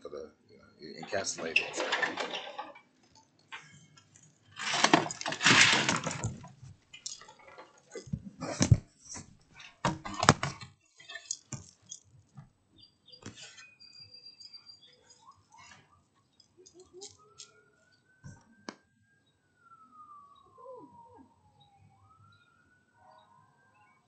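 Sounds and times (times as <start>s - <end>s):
window blinds rattling: 1.0s - 3.9s, 4.5s - 8.0s.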